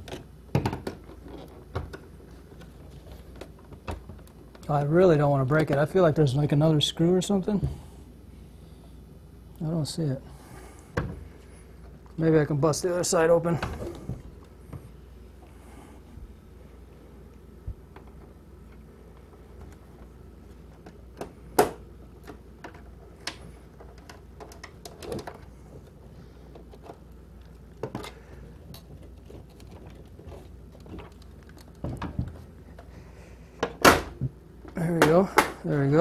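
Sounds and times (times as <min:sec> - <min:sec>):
plastic rubbing and handling: 0:22.0 - 0:33.2.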